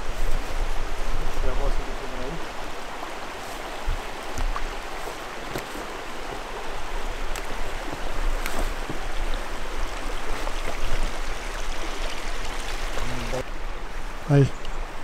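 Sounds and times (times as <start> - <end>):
shallow river water running: 0.0 - 15.0
water splashing and clicks: 3.4 - 6.4, 7.1 - 13.4.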